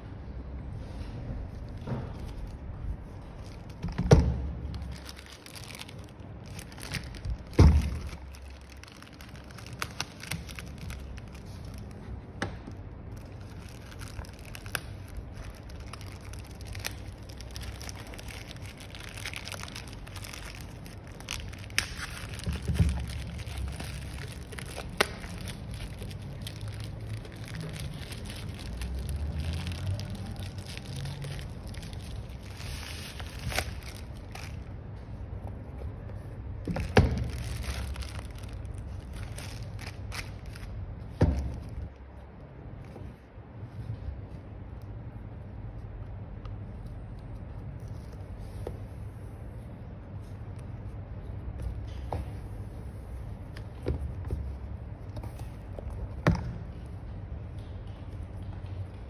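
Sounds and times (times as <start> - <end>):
plastic mailer bag crinkling: 4.6 - 12.1, 13.0 - 34.8, 36.7 - 40.8.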